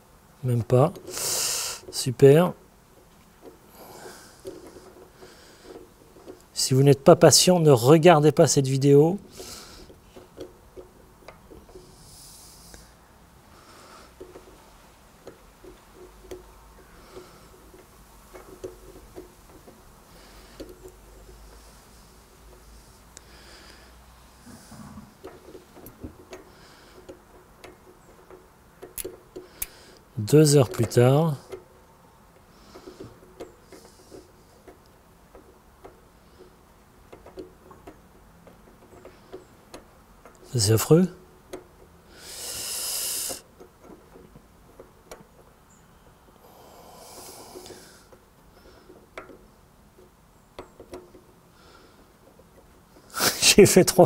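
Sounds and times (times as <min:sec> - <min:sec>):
soft breath: 0:03.7 - 0:06.3, 0:11.7 - 0:14.5, 0:20.1 - 0:25.2, 0:42.1 - 0:43.4, 0:46.2 - 0:49.0
metallic clicks and taps: 0:09.2 - 0:11.9, 0:15.2 - 0:19.8, 0:25.2 - 0:31.7, 0:32.4 - 0:40.5, 0:41.4 - 0:42.0, 0:43.3 - 0:45.8, 0:47.6 - 0:53.1
short scraping rubs: 0:20.1 - 0:27.0.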